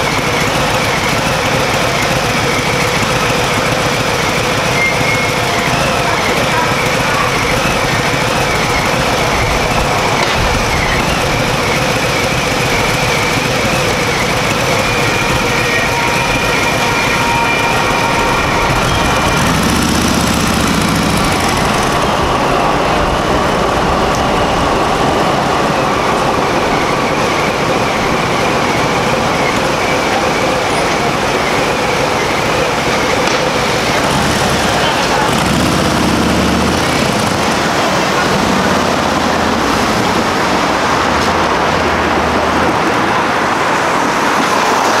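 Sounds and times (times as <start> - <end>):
railroad crossing bell ringing: 0.0 - 23.6
light rail train passing: 0.0 - 45.0
road traffic: 0.0 - 45.0
vehicles idling and pulling away: 0.0 - 45.0.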